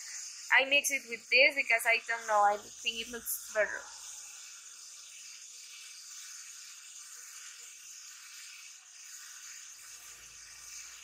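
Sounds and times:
steady high hiss: 0:00.0 - 0:11.0.

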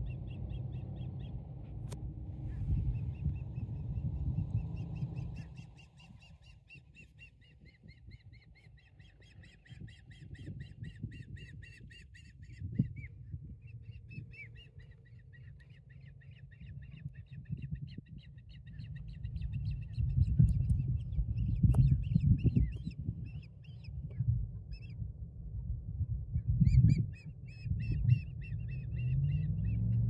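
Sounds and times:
low rumbling noise: 0:00.0 - 0:06.7
osprey chirping: 0:02.4 - 0:23.9.

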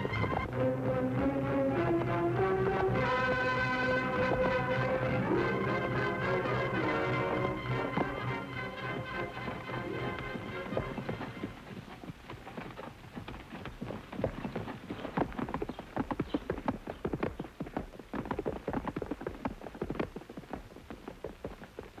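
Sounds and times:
horse hooves clip-clopping: 0:00.0 - 0:22.0.

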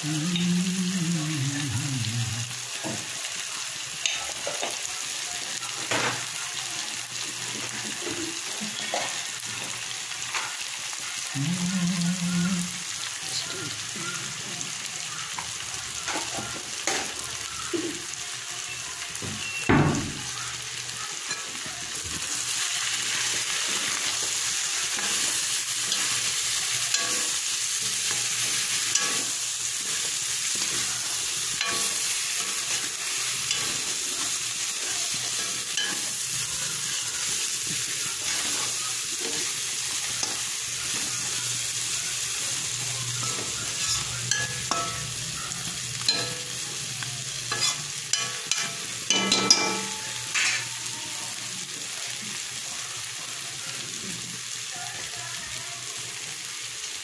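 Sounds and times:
meat sizzling in a wok: 0:00.0 - 0:57.0
metal spatula scraping a pan: 0:42.7 - 0:45.2, 0:47.5 - 0:50.7.

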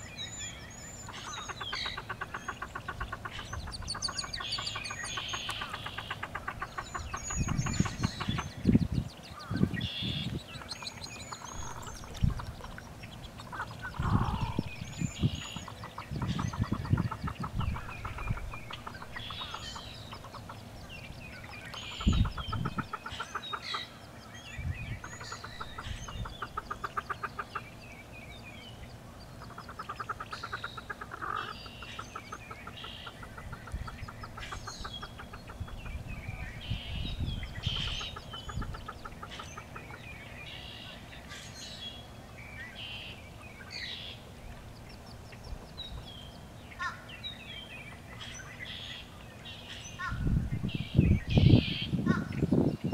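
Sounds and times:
high peeps and chirps: 0:00.0 - 0:52.9
duck clucking: 0:01.1 - 0:08.6, 0:10.5 - 0:14.6, 0:15.3 - 0:20.6, 0:21.7 - 0:23.9, 0:25.0 - 0:27.7, 0:29.4 - 0:36.0.

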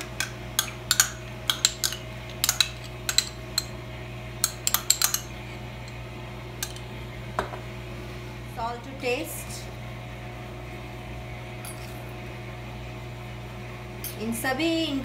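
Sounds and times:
metal spoon clinking ceramic bowls: 0:00.0 - 0:03.8, 0:04.4 - 0:06.0, 0:06.6 - 0:06.8.

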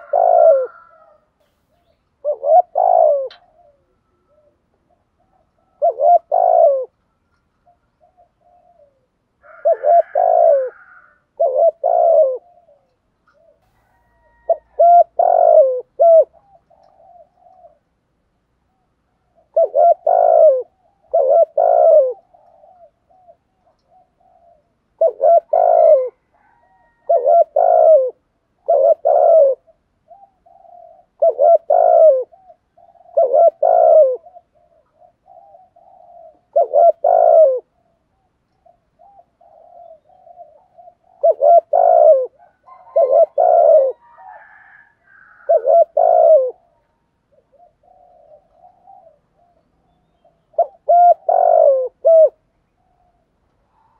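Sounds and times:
dove cooing: 0:00.0 - 0:18.0, 0:18.7 - 0:53.9.

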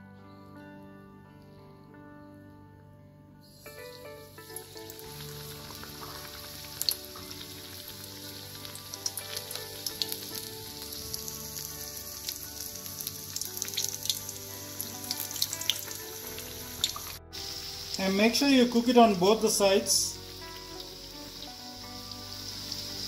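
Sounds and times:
food deep-frying in hot oil: 0:03.7 - 0:23.0
oil popping and crackling: 0:04.0 - 0:18.8.

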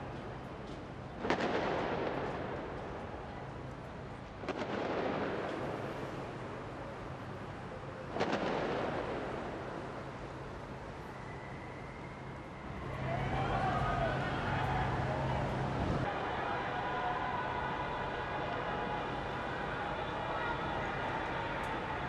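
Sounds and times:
fireworks booming with echo: 0:01.2 - 0:03.0, 0:04.4 - 0:06.5, 0:08.1 - 0:10.1.

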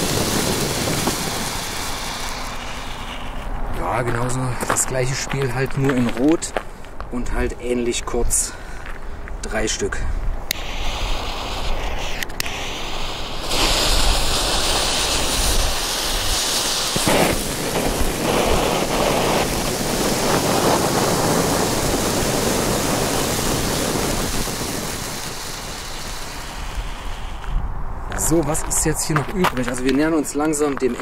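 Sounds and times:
firework fountains hissing: 0:00.0 - 0:03.7, 0:10.5 - 0:27.6
crackling burst: 0:00.0 - 0:09.7, 0:10.3 - 0:31.0.

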